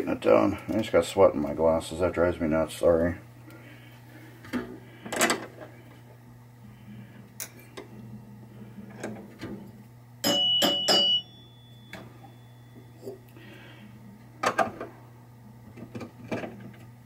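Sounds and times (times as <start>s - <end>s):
metal chime bars ringing: 10.2s - 12.8s.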